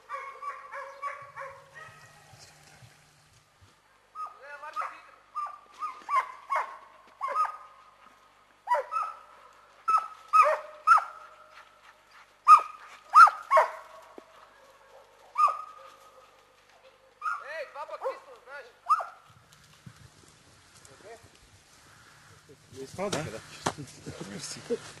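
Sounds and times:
dog barking: 0.0 - 2.3, 4.2 - 7.7, 8.7 - 11.3, 12.5 - 19.2.

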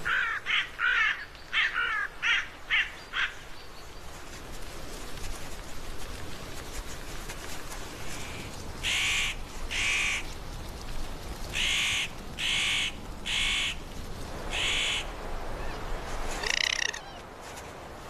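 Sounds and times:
higher rising animal call: 16.4 - 17.2
short animal calls: 16.4 - 17.2.

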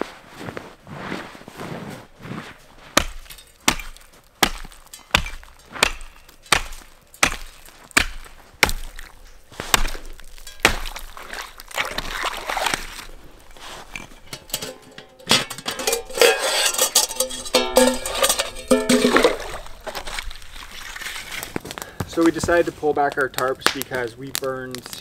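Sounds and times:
broken ice scraping and crunching: 2.0 - 24.1
hatchet striking ice: 3.0 - 13.2.

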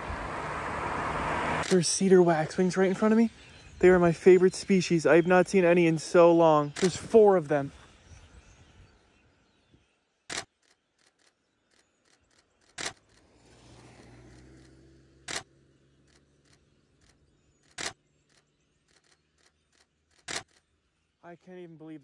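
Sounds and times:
camera shutter clicking: 6.8 - 7.0, 10.3 - 10.5, 17.7 - 18.0.

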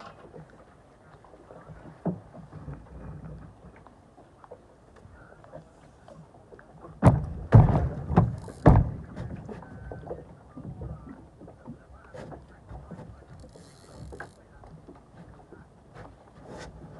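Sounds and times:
water splashing: 0.0 - 16.9.

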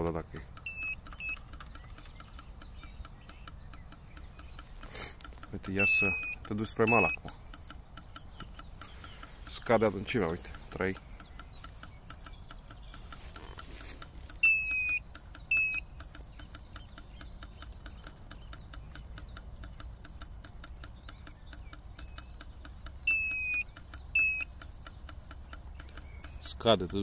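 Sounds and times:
faint fast ticking: 0.0 - 27.0
fish finder alarm beeps: 0.6 - 1.6, 5.7 - 7.3, 14.4 - 15.9, 23.0 - 24.5.

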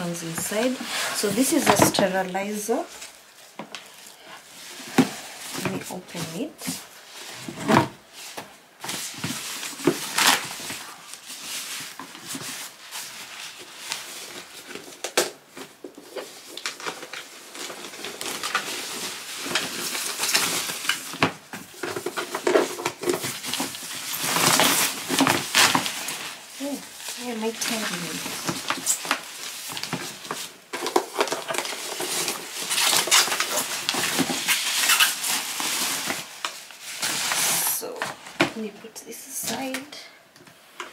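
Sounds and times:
plastic packaging crinkling: 0.0 - 38.7.

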